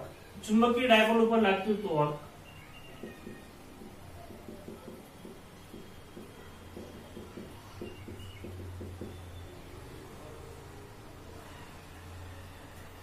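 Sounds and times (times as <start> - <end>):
marker writing on whiteboard: 2.5 - 9.5.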